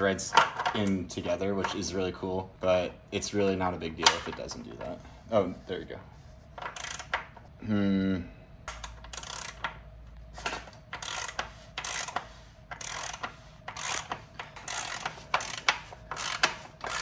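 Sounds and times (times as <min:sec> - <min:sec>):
ratcheting tool clicking: 0:06.6 - 0:07.3, 0:08.7 - 0:09.8, 0:10.9 - 0:17.0.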